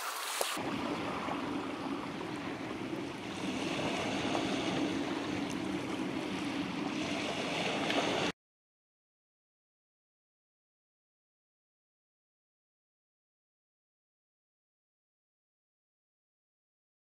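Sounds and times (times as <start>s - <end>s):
small waves washing over rocks: 0.0s - 8.3s.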